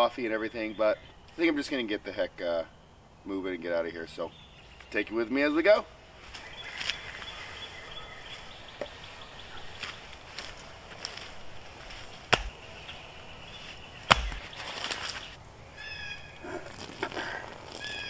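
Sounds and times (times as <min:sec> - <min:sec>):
bird chirping: 0:00.0 - 0:16.6
wooden stick knocking on wood: 0:12.3 - 0:12.6.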